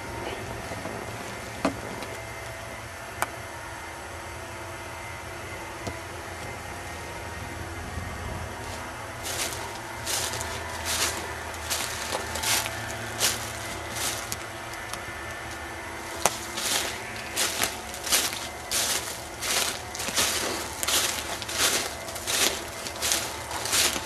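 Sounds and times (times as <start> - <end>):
footsteps crunching: 8.5 - 24.0.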